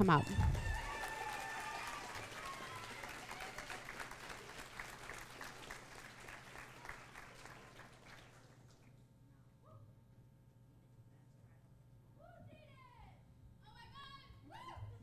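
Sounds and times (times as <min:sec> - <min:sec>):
audience applauding: 0:00.0 - 0:08.9.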